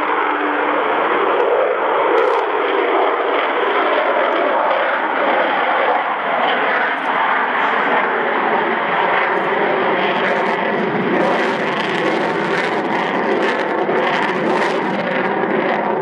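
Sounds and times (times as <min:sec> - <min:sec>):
jet engines roaring overhead: 0:00.0 - 0:16.0
engine crackling: 0:02.2 - 0:02.5.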